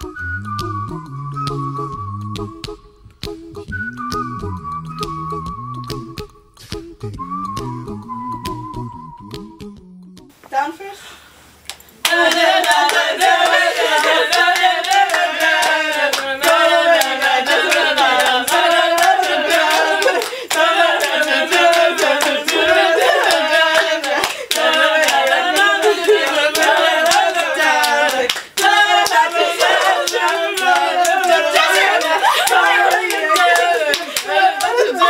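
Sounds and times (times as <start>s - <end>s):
quick hand claps: 11.7s - 34.8s
young women singing together: 12.0s - 35.0s.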